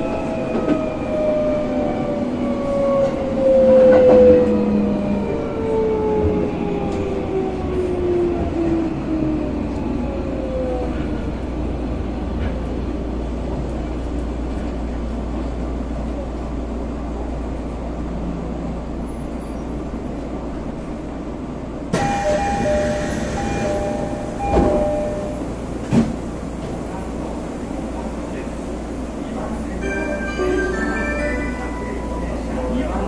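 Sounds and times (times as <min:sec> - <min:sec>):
wheel and track rumble: 0:00.0 - 0:29.8.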